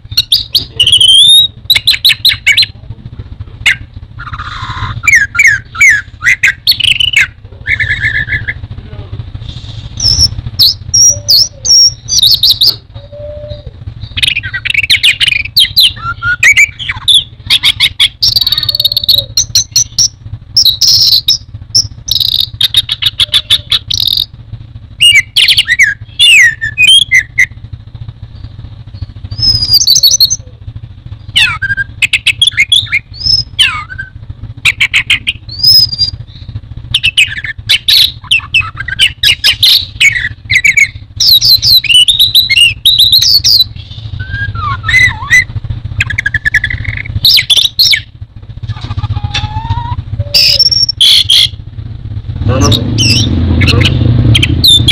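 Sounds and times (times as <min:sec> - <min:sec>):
low background hum: 0:00.0 - 0:54.9
thrush singing: 0:31.2 - 0:54.9.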